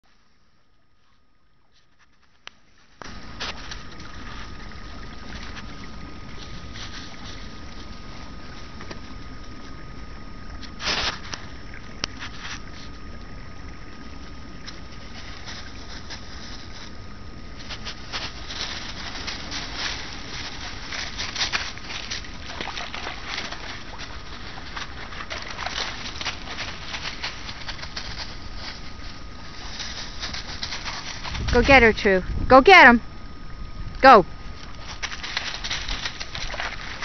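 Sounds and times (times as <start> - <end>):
dry leaves crunching underfoot: 6.4 - 9.6, 10.8 - 12.9, 14.6 - 31.8, 34.7 - 37.0.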